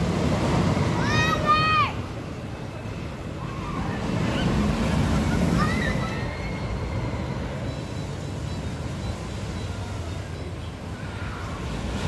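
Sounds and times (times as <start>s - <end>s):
faint high voices: 3.0s - 7.8s, 9.2s - 12.0s.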